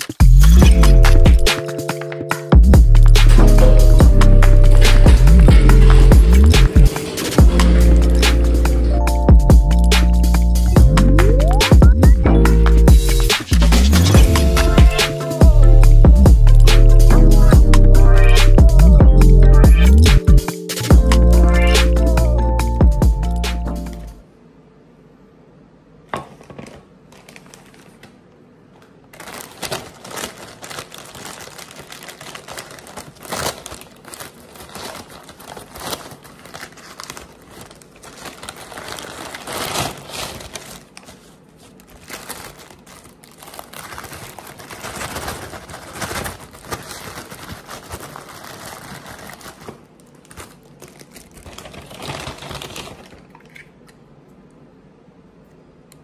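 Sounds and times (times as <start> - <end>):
food wrapper crinkling: 4.7 - 9.3, 27.1 - 28.2, 28.9 - 53.8.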